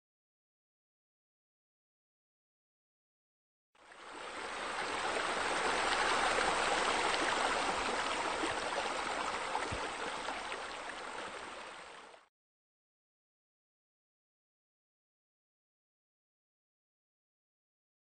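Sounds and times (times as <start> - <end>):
running water rushing: 3.8 - 12.3.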